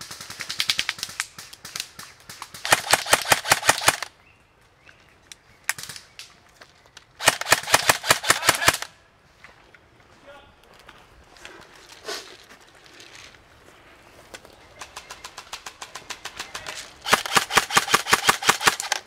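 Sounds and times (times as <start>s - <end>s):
airsoft rifle automatic fire: 0.0s - 4.1s, 7.2s - 8.9s, 15.0s - 19.0s.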